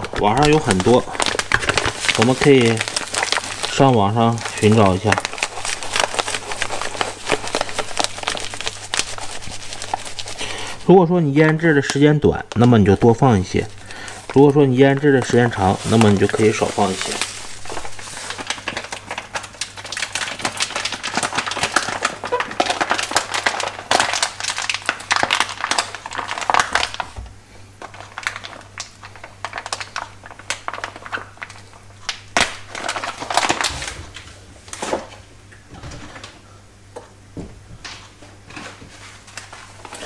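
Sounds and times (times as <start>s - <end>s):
rustling and clicking of handling: 0.0s - 10.4s.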